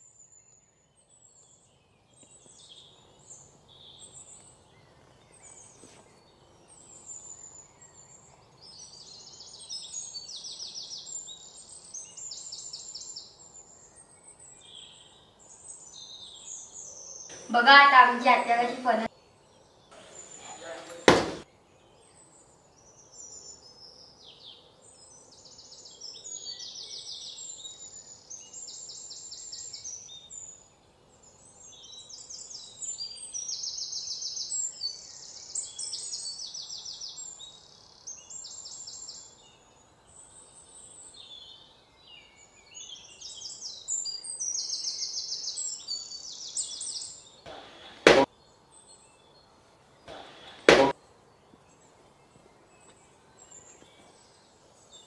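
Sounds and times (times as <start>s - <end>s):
blade chopping into fruit: 21.0s - 21.4s, 47.5s - 48.3s, 50.1s - 51.0s.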